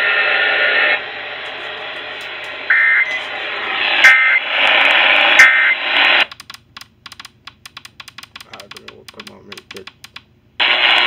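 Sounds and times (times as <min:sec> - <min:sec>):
radio hiss: 0:00.0 - 0:06.3, 0:10.6 - 0:11.0
faint clicks: 0:06.3 - 0:10.3.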